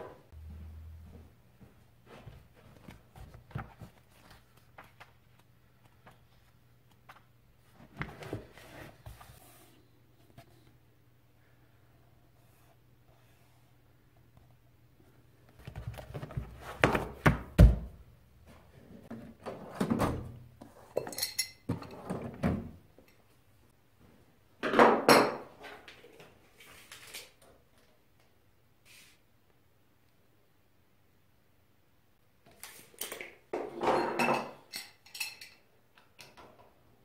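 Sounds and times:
metal drawers opening and shutting: 19.2s - 20.4s.

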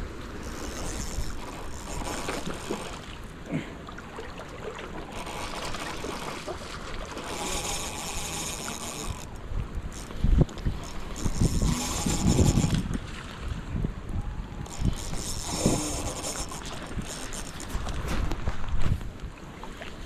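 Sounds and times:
wind noise on microphone: 7.3s - 19.3s.

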